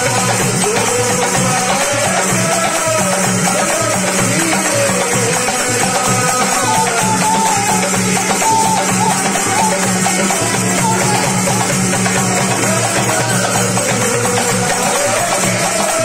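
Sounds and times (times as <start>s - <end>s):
drum beat: 0.0s - 16.0s
hand percussion: 0.0s - 16.0s.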